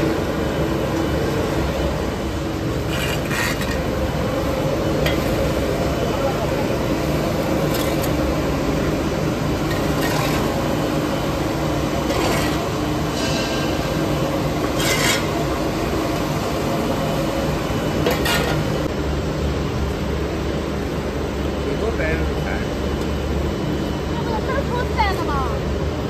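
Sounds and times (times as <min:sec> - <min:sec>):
machinery hum: 0:00.0 - 0:26.0
rasping scrape: 0:02.8 - 0:03.9, 0:12.0 - 0:13.8, 0:14.6 - 0:15.4.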